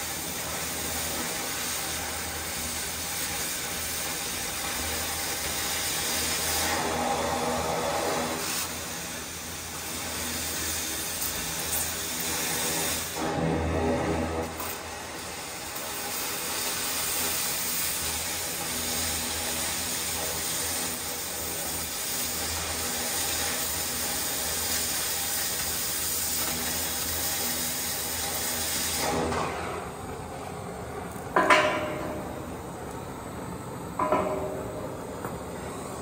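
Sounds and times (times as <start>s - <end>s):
cutting torch hissing: 0.0s - 30.1s.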